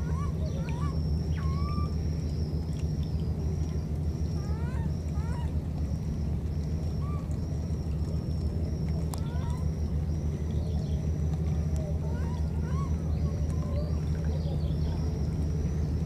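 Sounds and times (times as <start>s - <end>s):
high-pitched animal calls: 0.0s - 2.0s
steady low hum: 0.0s - 16.0s.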